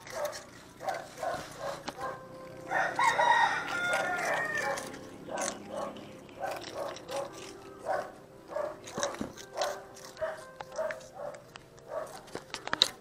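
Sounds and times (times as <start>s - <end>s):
cats crunching crackers: 0.0s - 13.0s
rooster crowing: 2.6s - 5.0s.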